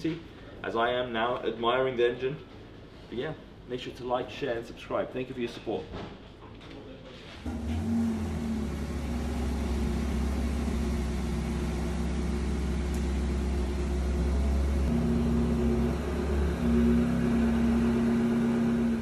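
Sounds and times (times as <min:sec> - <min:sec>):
car engine idling: 0:07.5 - 0:19.0.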